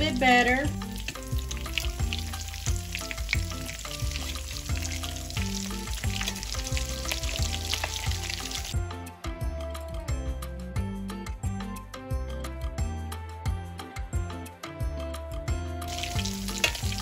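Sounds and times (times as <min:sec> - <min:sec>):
patties sizzling in hot oil: 0:00.0 - 0:08.8, 0:15.9 - 0:17.0
metal spatula turning food: 0:00.8 - 0:08.7, 0:15.9 - 0:17.0.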